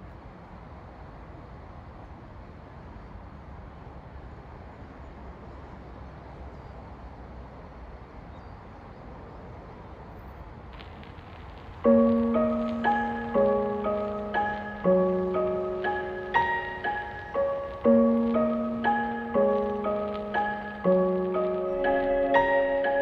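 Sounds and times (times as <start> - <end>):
low outdoor rumble: 9.9 - 23.0.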